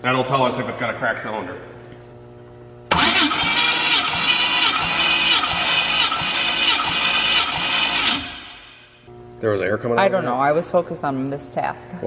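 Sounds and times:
engine cranking on starter motor: 2.9 - 8.8.

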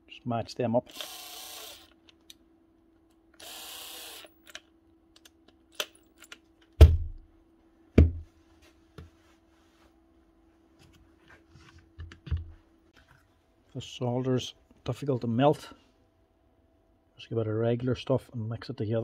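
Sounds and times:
small clicks of parts: 4.4 - 6.8
knocks on workbench: 8.0 - 8.2.

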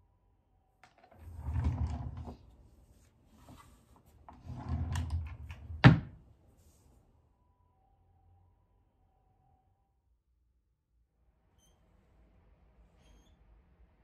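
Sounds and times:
drawer sliding: 0.9 - 2.6, 3.3 - 6.2
drawer shutting thunk: 4.4 - 6.2.

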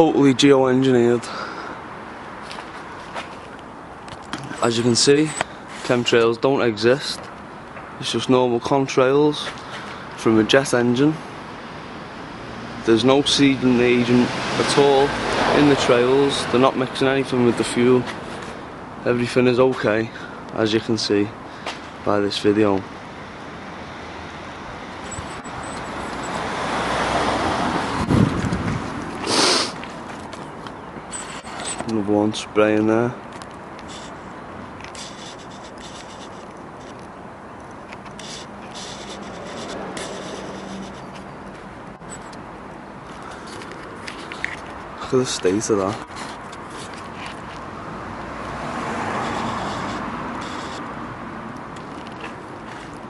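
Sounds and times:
vehicle passing by: 12.2 - 18.6, 23.6 - 30.0, 38.0 - 42.3, 46.9 - 53.0
outdoor rushing noise: 22.6 - 31.9
wind buffeting microphone: 27.4 - 29.2
burst of hiss: 29.2 - 29.8.

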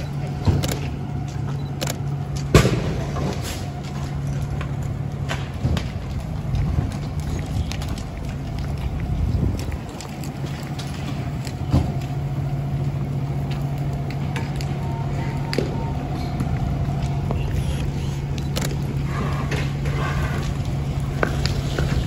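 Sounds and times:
diesel engine humming: 0.0 - 22.0
sharp clicks and pops: 0.1 - 2.8.

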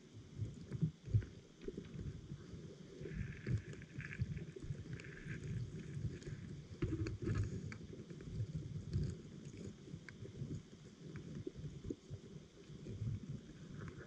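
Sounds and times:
muffled underwater rumble: 0.0 - 14.0
sharp clicks and crackles: 3.1 - 10.5.

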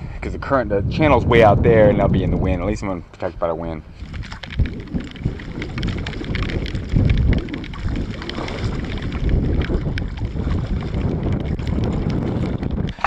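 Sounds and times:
wind buffeting microphone: 0.0 - 13.0
raindrops ticking on camera: 4.0 - 13.0.

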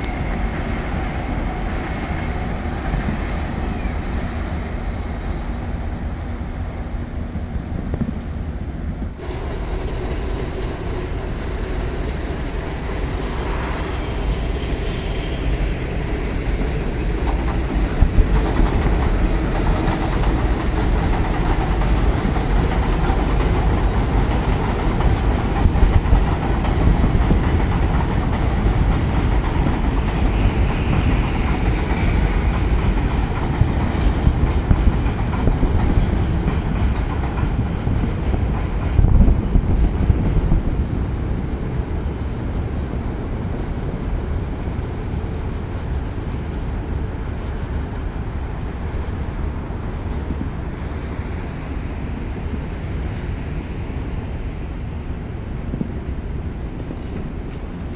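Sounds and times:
train rumbling past: 0.0 - 57.9
high wheel squeals: 12.3 - 17.1, 20.6 - 22.3.

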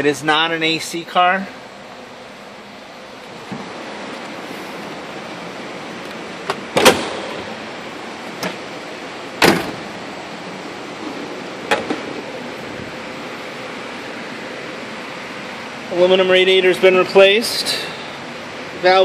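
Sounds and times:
car door slamming: 6.5 - 7.4, 9.4 - 9.9.

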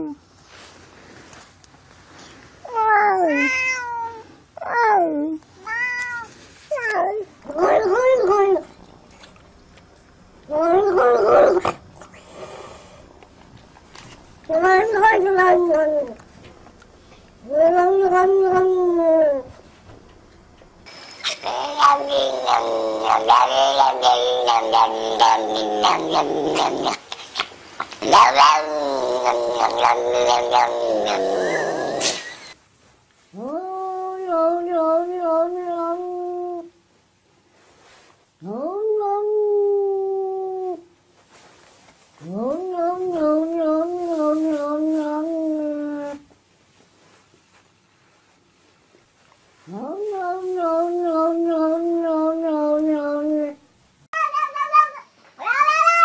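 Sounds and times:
cat meowing: 2.7 - 4.8, 5.6 - 6.9, 21.2 - 26.9, 54.2 - 56.0.

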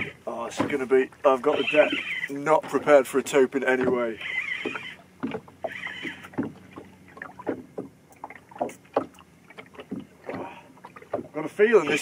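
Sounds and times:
water slapping against boat hull: 0.0 - 12.0
fishing reel drag rasp: 1.5 - 2.9, 4.1 - 5.0, 11.6 - 12.0.

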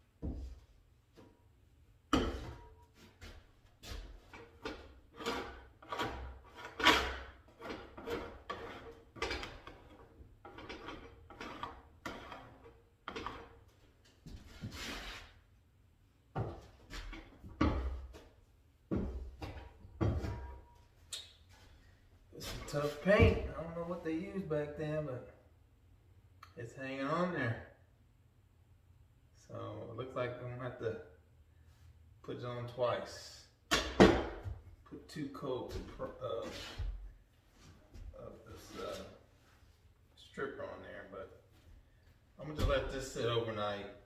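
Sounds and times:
metal scraper scraping wooden door: 4.3 - 13.7.

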